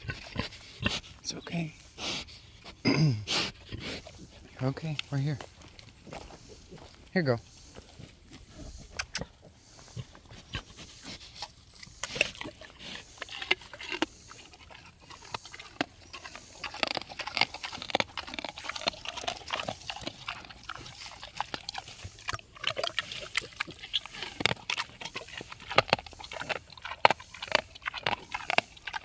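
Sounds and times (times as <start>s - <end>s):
pigs grunting and snuffling: 0.0s - 29.0s.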